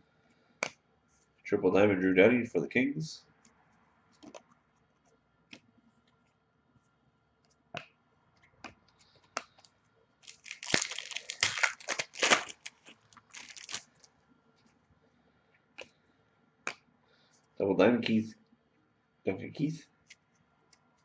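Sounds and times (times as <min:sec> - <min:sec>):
foil wrapper tearing and crinkling: 0:10.2 - 0:14.0.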